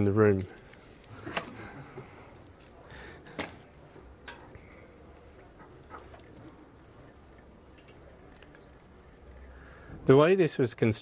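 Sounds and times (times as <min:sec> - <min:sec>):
wire antenna clicking and rattling: 0:00.0 - 0:01.5, 0:03.4 - 0:09.8.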